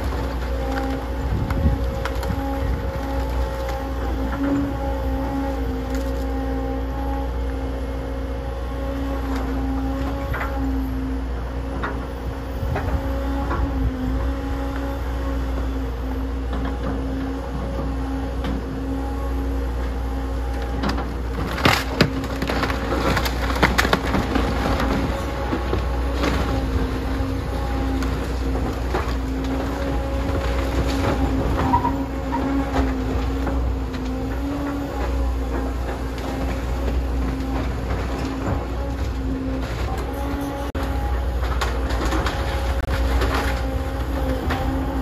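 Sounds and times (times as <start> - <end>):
timber cracking and splintering: 0.0 - 4.4, 5.0 - 6.4, 20.6 - 35.2
excavator engine hum: 0.0 - 45.0.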